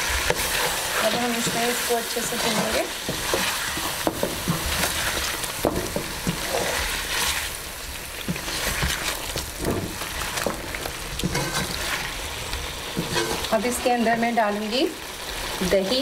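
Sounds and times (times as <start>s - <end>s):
wooden spatula scraping pan: 0.0s - 7.5s, 8.2s - 12.2s, 12.9s - 13.9s
chicken sizzling in oil: 0.0s - 16.0s.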